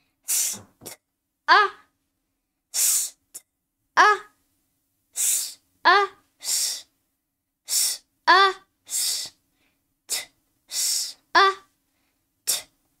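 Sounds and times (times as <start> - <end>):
boy sounding out letters: 0.3 - 1.9, 4.0 - 4.3, 5.2 - 6.8, 7.7 - 9.3, 10.1 - 11.7.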